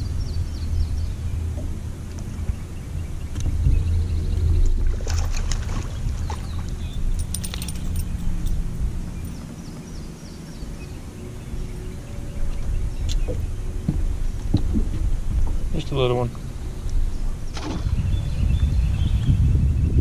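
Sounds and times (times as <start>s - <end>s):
wind rumble on microphone: 0.0s - 20.0s
fishing reel clicks and rattles: 7.2s - 8.6s.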